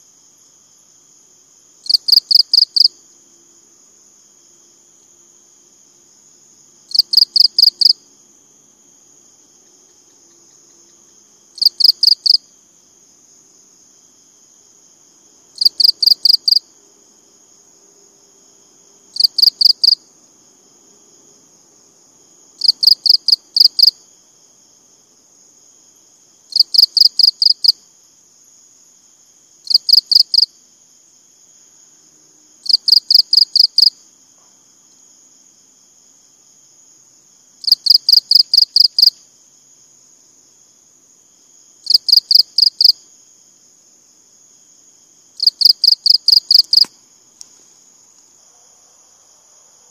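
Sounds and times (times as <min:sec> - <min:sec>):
cricket chirping: 0:00.0 - 0:49.9.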